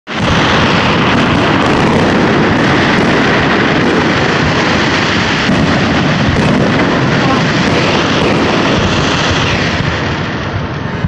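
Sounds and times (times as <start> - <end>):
fireworks bursting: 0.1 - 11.0.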